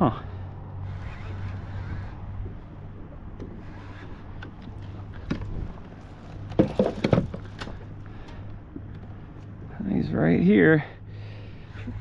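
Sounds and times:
sharp knocks and thumps: 6.5 - 7.8.

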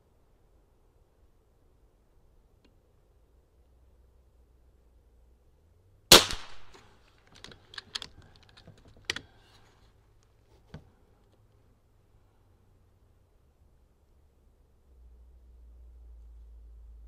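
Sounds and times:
air rifle shot: 6.1 - 6.8.

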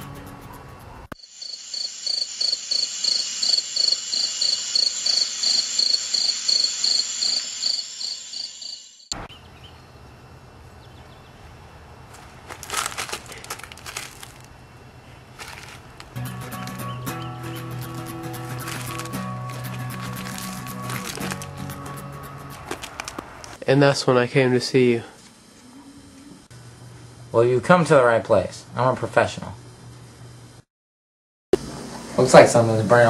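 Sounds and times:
crickets chirping: 0.6 - 23.7
outdoor background hiss: 1.2 - 16.6, 17.6 - 30.7
scuffing noises: 12.1 - 14.5, 15.2 - 16.3, 18.2 - 21.7, 22.5 - 23.6.

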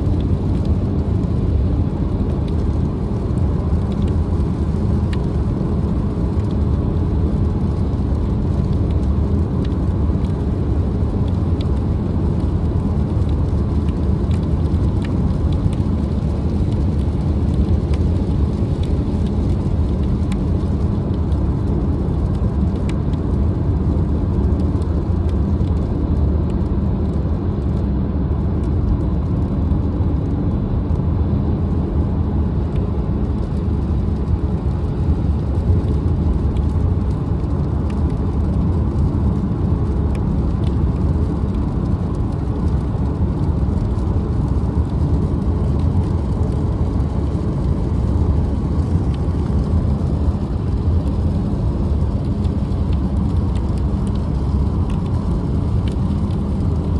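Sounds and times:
car road noise rumble: 0.0 - 56.9.

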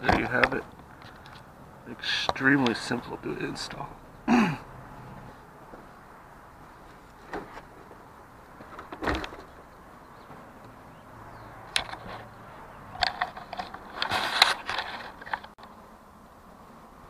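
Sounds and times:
clicks knocks and scraping: 0.0 - 1.5, 6.8 - 10.8, 11.6 - 15.7.

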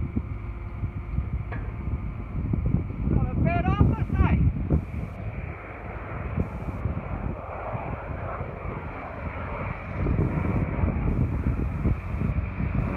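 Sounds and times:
distant propeller plane droning: 0.0 - 12.9.

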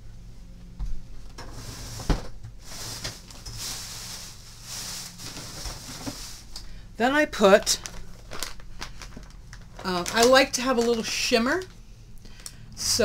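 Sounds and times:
objects rustling and scraping: 1.3 - 6.7, 7.8 - 11.8.

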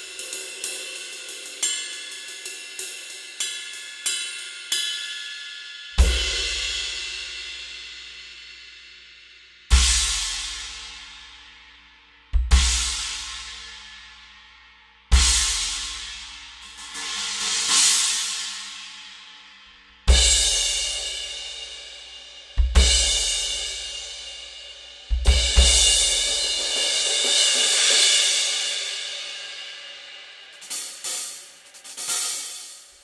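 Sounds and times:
cymbals crashing and ringing: 0.0 - 8.4, 15.2 - 19.3, 20.1 - 33.0
bass drum kicks: 12.4 - 12.9, 22.6 - 23.1, 25.1 - 25.9.

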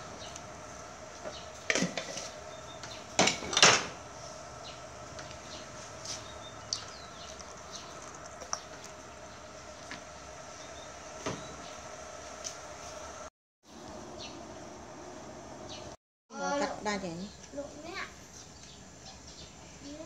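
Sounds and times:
background hum: 0.0 - 20.0
kitchenware clattering: 1.7 - 2.2, 3.2 - 3.9.

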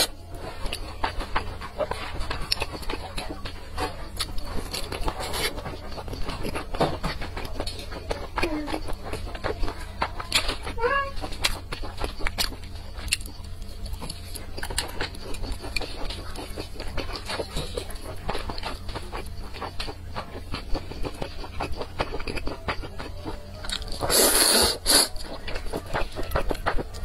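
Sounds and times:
wet chewing and mouth smacks: 0.0 - 27.0
slurping noodles: 24.0 - 26.0.

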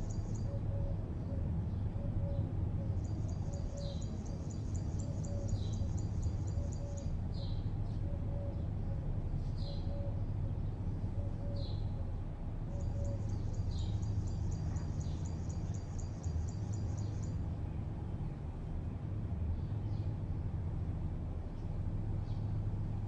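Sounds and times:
bird chirping: 0.0 - 1.0, 1.7 - 8.9, 9.5 - 10.2, 11.1 - 12.0, 12.7 - 17.4
distant city traffic hum: 0.0 - 23.0.

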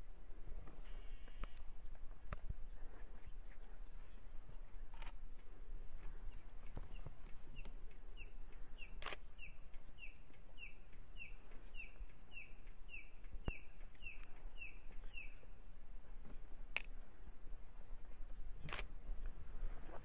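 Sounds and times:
bird chirping: 0.8 - 1.7, 3.2 - 5.1, 6.0 - 15.6
sharp clicks: 1.2 - 1.7, 6.6 - 15.1, 18.6 - 18.9.

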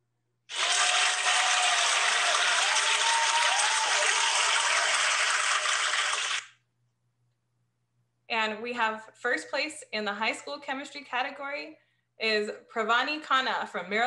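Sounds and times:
crowd applause: 0.5 - 6.5.

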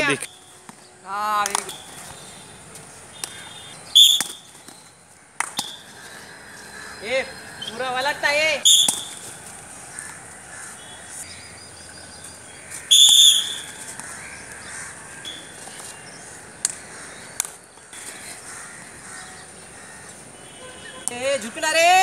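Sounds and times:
shrill whistle blast: 4.0 - 4.5, 8.6 - 9.1, 12.9 - 13.6.

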